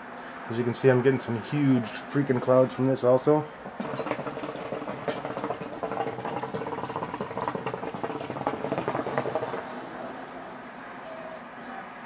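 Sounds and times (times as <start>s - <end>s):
water bubbling in hookah: 3.6s - 9.7s.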